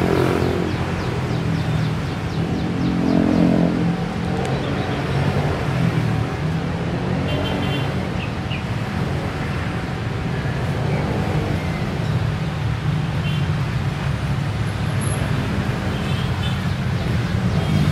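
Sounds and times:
road traffic noise: 0:00.0 - 0:17.9.

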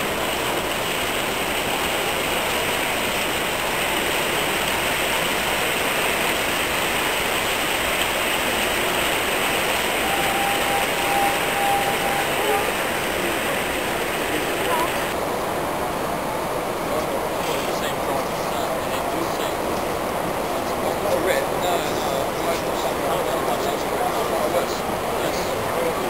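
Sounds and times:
model train running on track: 0:00.0 - 0:26.0
hubbub of busy hall: 0:09.9 - 0:26.0.

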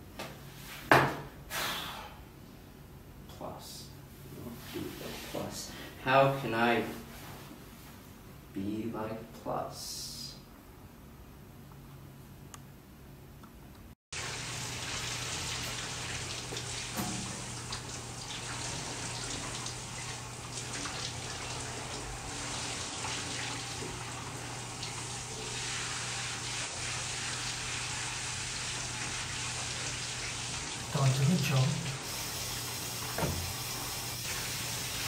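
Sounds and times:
tap water running into sink: 0:14.2 - 0:35.0.

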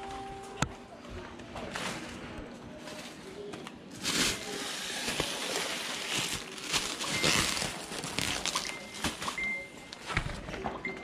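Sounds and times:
plastic bags rustling: 0:01.6 - 0:10.1.

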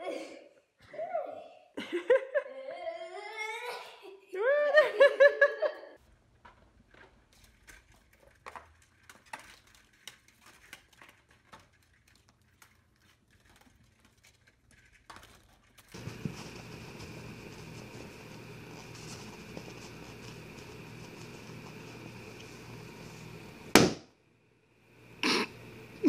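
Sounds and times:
steady hiss: 0:15.9 - 0:24.0, 0:24.7 - 0:26.0.

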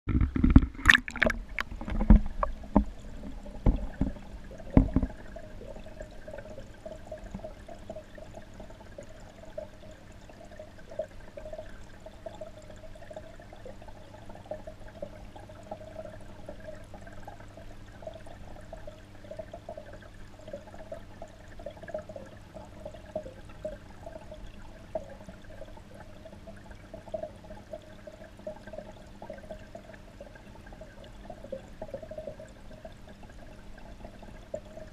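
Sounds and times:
water splashing: 0:00.1 - 0:06.4
fluttering gurgle: 0:00.1 - 0:34.9.

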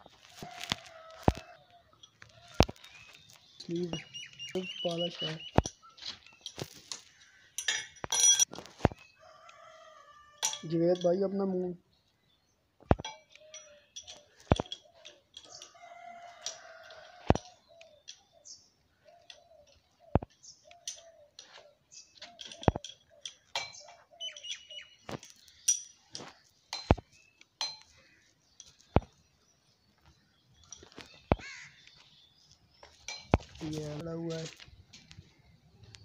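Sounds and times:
birds calling: 0:00.0 - 0:08.2, 0:08.8 - 0:36.0
spanner clinking on metal: 0:07.6 - 0:08.6, 0:10.4 - 0:11.4, 0:13.0 - 0:18.3, 0:22.2 - 0:24.5, 0:25.2 - 0:27.0.

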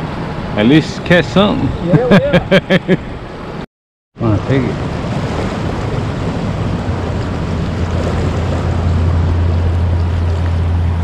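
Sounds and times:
turbulent river water rushing: 0:04.2 - 0:11.0
low rumble: 0:04.7 - 0:11.0.

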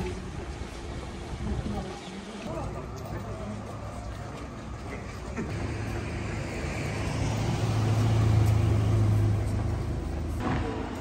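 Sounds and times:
car driving past: 0:05.6 - 0:11.0.

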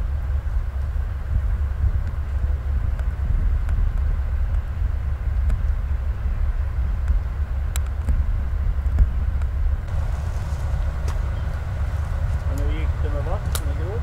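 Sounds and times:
diesel machinery idling: 0:09.9 - 0:14.0.

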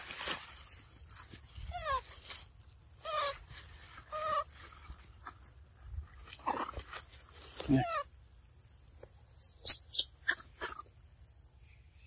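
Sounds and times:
macaques high-pitched calls: 0:03.0 - 0:03.4, 0:04.1 - 0:04.6, 0:07.6 - 0:08.1, 0:09.4 - 0:11.0.

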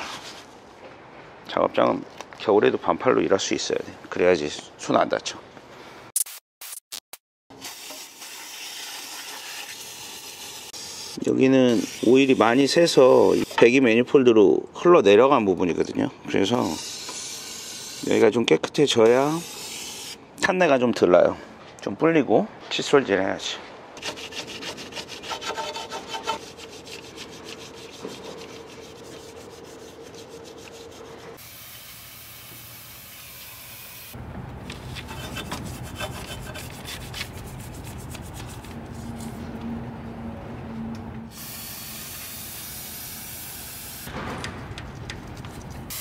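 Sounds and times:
toothbrush scrubbing metal: 0:24.0 - 0:31.4, 0:35.0 - 0:38.7
aerosol spray hissing: 0:31.4 - 0:34.2, 0:41.3 - 0:44.1.

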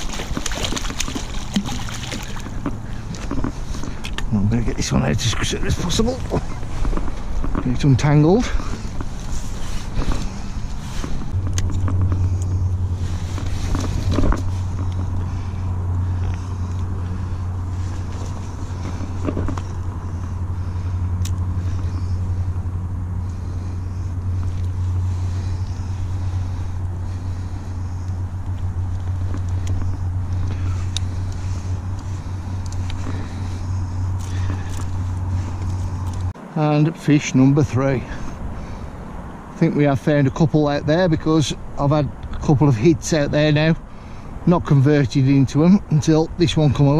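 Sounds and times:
clicks and rustles of fishing gear: 0:00.0 - 0:04.3, 0:06.2 - 0:07.8, 0:08.5 - 0:22.2, 0:24.0 - 0:36.3
steady low rumble: 0:00.0 - 0:46.9.

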